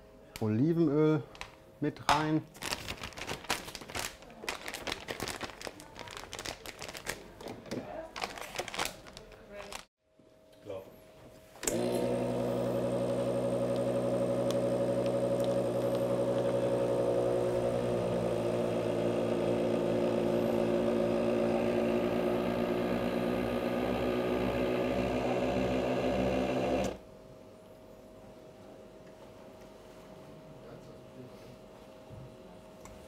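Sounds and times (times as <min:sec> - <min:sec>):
vacuum sealer click: 0:11.6 - 0:27.0
vacuum sealer pump motor running: 0:11.6 - 0:27.0.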